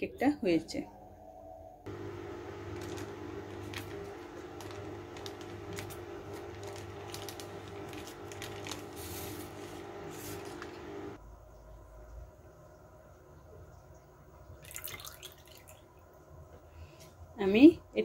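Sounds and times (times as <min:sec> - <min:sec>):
steady low hum: 0:00.9 - 0:11.8
baking paper crackling: 0:01.9 - 0:11.2.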